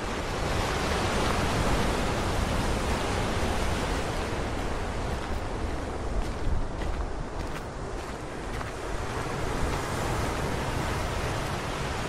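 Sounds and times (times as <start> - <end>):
surf washing over rocks: 0.0 - 7.0, 7.9 - 12.0.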